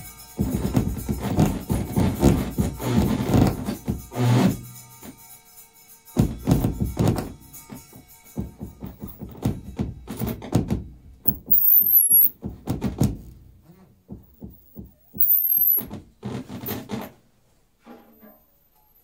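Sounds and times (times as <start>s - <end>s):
drum and percussion strikes: 6.2s - 10.2s
high descending squeals: 11.3s - 12.3s, 14.9s - 15.8s.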